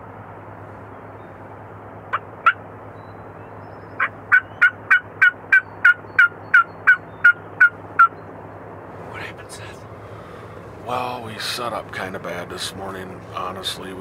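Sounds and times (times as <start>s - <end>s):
distant fans humming: 0.0s - 14.0s
turkey yelping: 4.0s - 8.2s.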